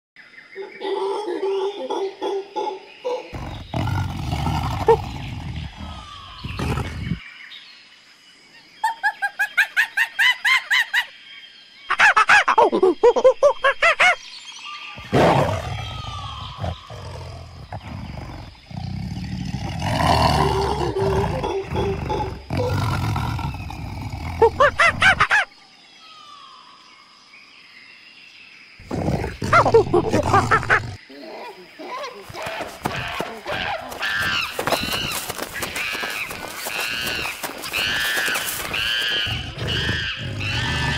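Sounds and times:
tiger snarling and roaring: 3.3 - 7.2, 15.0 - 25.3, 28.8 - 31.1, 32.3 - 40.9
rapid repeated animal calls: 32.2 - 40.9.

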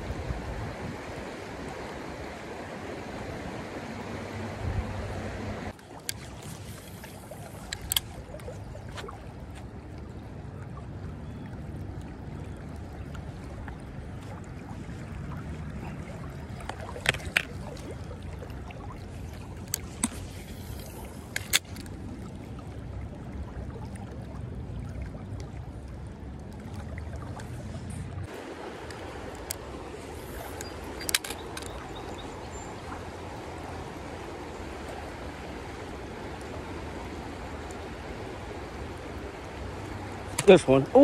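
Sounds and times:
creek water running: 0.0 - 41.0
sharp clicks: 30.5 - 31.9.

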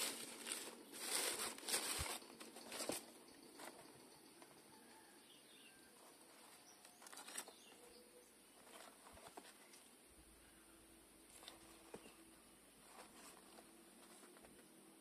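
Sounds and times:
tissue paper rustling: 0.0 - 3.7, 12.8 - 14.5.

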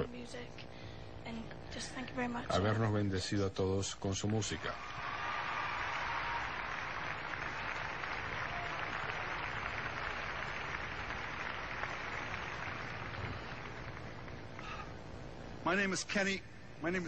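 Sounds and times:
audience applauding: 4.3 - 14.8.

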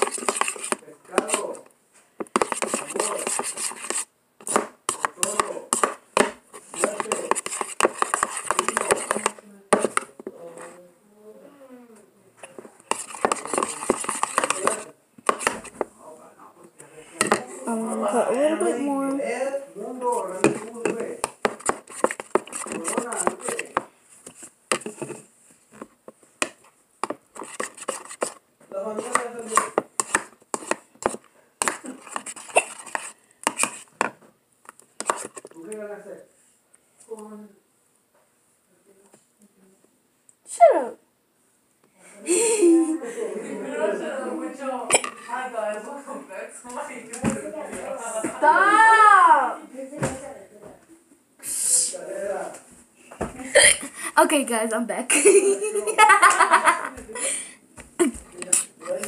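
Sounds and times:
utensil knocking plastic bowl: 2.2 - 10.2, 12.9 - 15.9, 20.4 - 23.9.

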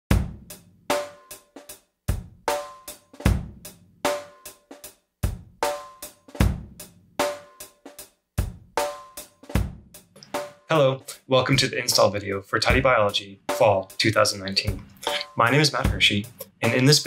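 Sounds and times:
kick drum thumps: 0.1 - 0.5, 3.2 - 3.6, 6.4 - 6.8, 8.4 - 8.8, 9.6 - 9.9.

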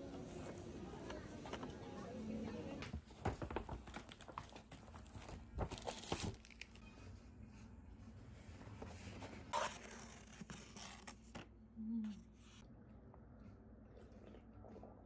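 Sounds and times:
paper bag rustling: 2.9 - 6.8.

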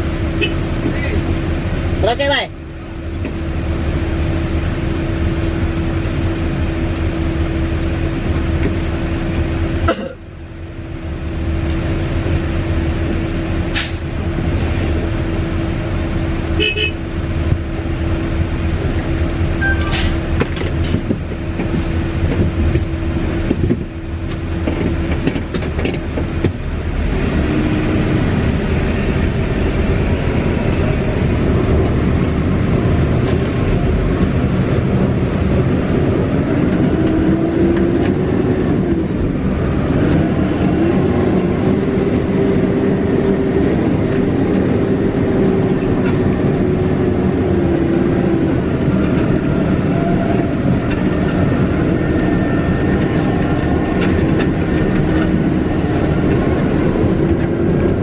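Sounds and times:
diesel truck engine: 0.0 - 58.0
cab knocks and rattles: 20.4 - 26.7.

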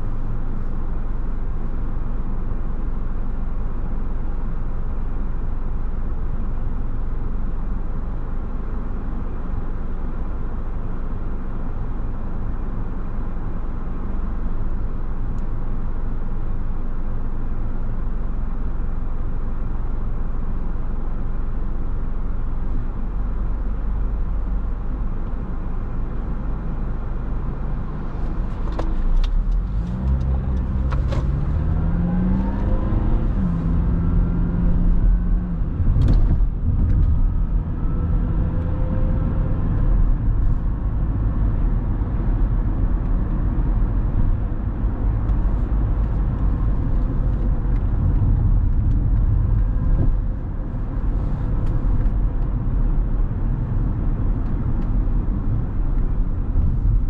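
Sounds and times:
road and tyre rumble: 0.0 - 57.0
car engine accelerating: 27.4 - 57.0.

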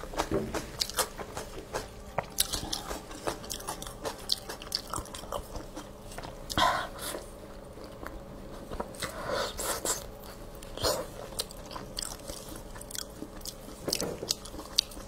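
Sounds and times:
chewing and mouth smacks: 0.0 - 6.6, 9.8 - 15.0.

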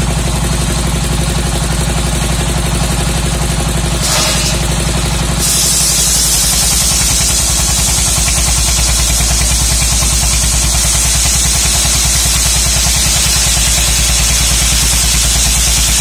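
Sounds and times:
diesel engine chugging: 0.0 - 16.0.

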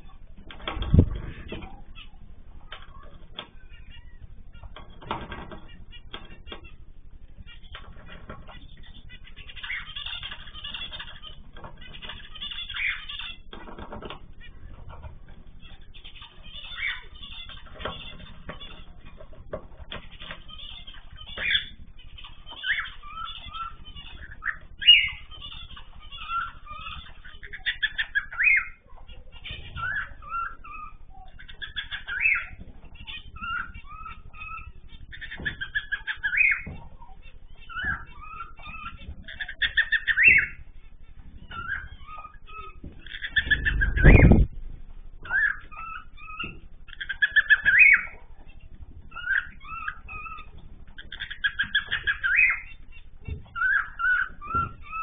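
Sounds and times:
low rumble: 0.0 - 2.7, 42.9 - 45.4
small birds chirping: 0.0 - 55.0.

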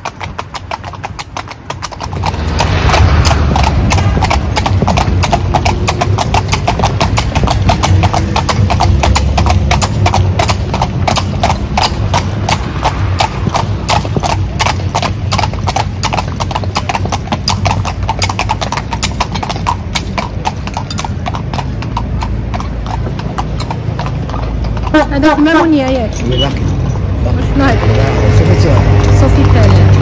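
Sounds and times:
horse hooves clip-clopping on asphalt: 0.0 - 30.0
low rumble: 2.0 - 16.2.

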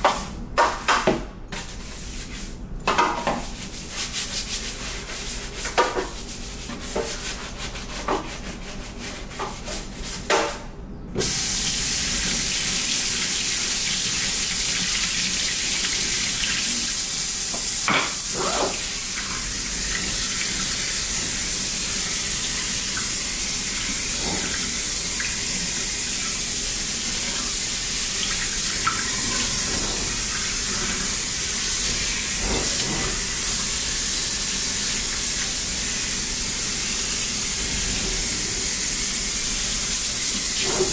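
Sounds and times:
scrubbing in a metal sink: 1.5 - 10.3, 18.2 - 40.9
water spraying into sink: 11.2 - 40.9.

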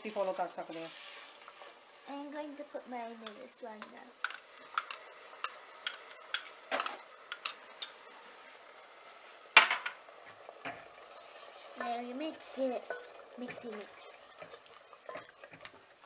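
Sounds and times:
faint sizzle: 0.0 - 16.0
spoons clinking on saucepans: 3.2 - 8.0, 12.8 - 13.7.

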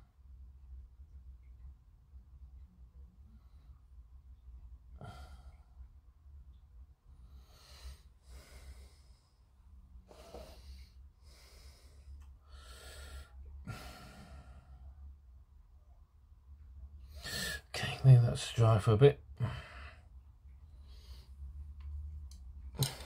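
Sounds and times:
person breathing: 7.1 - 15.1, 17.0 - 17.7, 19.4 - 21.7.

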